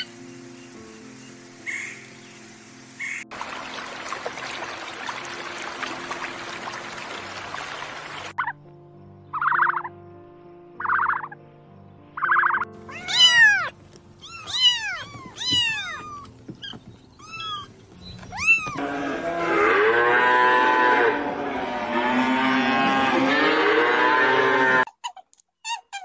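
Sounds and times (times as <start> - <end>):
soft background music: 0.0 - 24.9
kittens mewing: 12.4 - 18.8.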